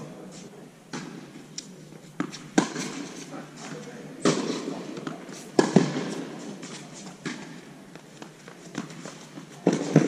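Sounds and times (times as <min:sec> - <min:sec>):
tennis balls hit by racket: 0:00.9 - 0:10.0
tennis balls bouncing on court: 0:02.2 - 0:10.0.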